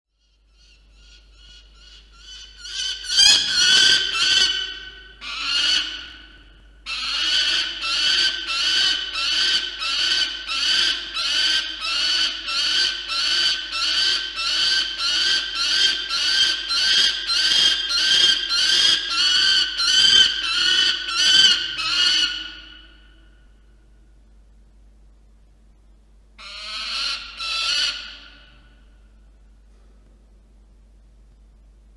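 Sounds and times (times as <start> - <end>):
falcon calling: 1.0 - 6.2, 26.4 - 28.5.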